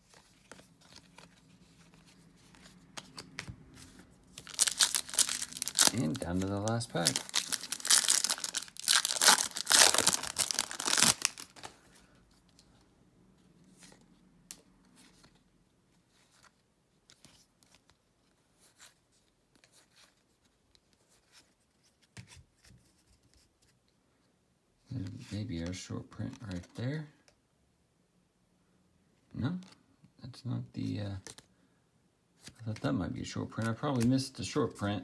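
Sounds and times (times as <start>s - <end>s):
cards being flipped: 0.0s - 11.8s, 33.5s - 34.3s
foil wrapper tearing and crinkling: 4.4s - 11.7s.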